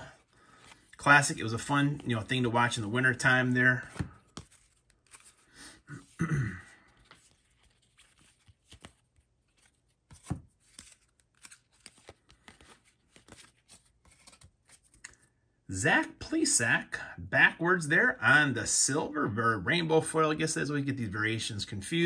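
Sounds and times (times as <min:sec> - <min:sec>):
cards flicking and snapping: 0:03.8 - 0:05.4, 0:08.0 - 0:15.3.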